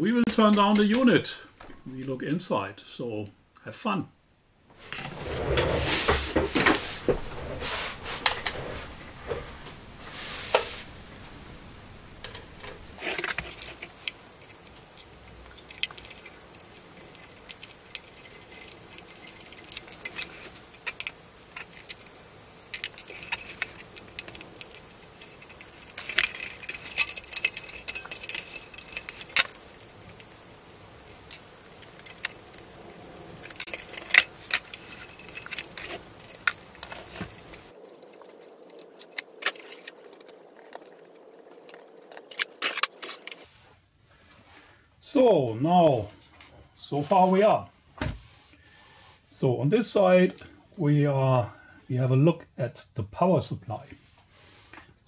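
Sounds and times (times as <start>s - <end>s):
screws and tools clinking on metal: 12.2s - 43.5s.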